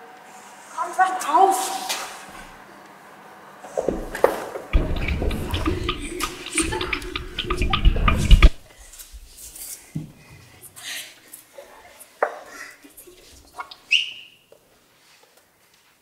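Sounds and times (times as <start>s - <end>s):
small knocks and clicks: 3.8s - 8.6s.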